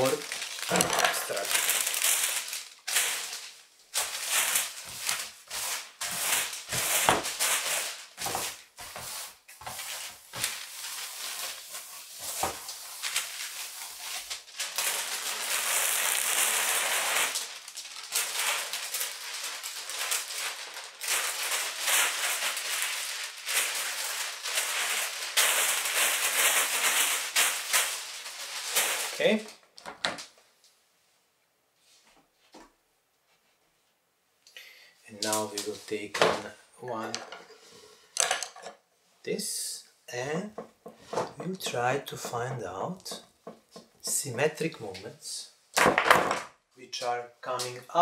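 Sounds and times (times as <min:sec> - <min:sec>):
paper crinkling and rustling: 0:00.0 - 0:30.3.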